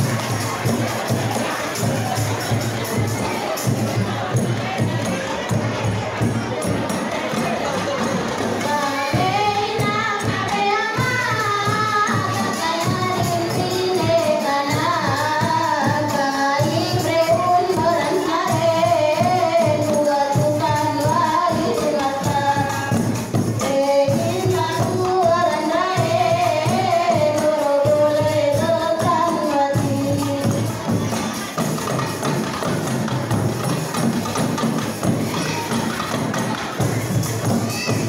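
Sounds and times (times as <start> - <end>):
frame drums beating: 0.0 - 38.0
woman singing through microphone: 8.6 - 30.8.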